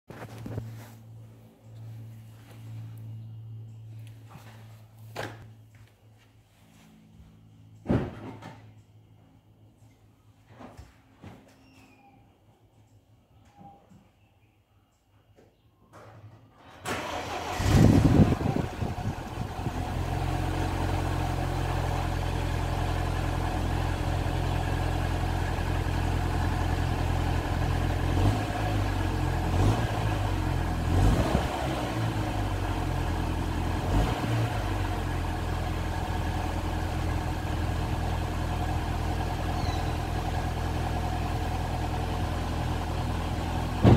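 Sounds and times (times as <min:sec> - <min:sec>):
car engine idling: 0:16.9 - 0:43.9.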